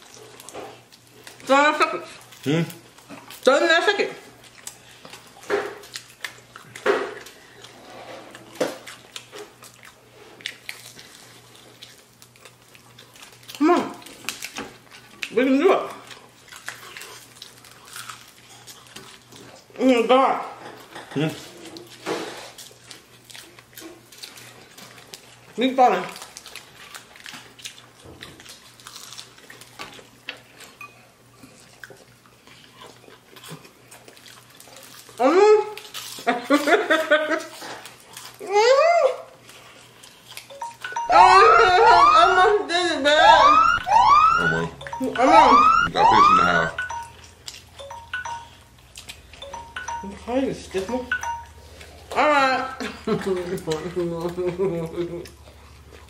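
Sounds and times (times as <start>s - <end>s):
wet chewing and lip smacks: 0.0s - 3.5s, 4.2s - 19.8s, 21.4s - 38.4s, 39.2s - 41.1s, 43.4s - 52.2s.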